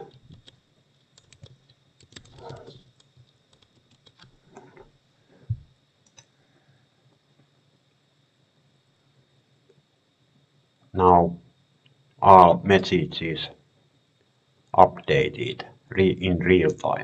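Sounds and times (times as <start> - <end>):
keyboard typing clicks: 0.1 - 4.3.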